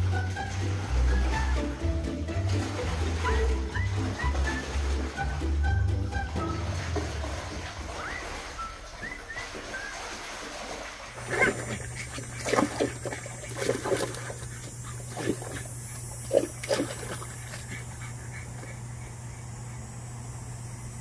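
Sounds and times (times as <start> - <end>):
splashes in water: 0.0 - 18.3
steady low hum: 11.0 - 21.0
dog grunting: 11.2 - 19.9.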